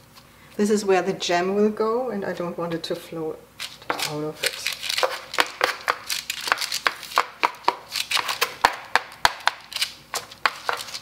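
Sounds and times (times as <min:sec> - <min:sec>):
metal scraper knocking on dough: 0:05.0 - 0:09.7.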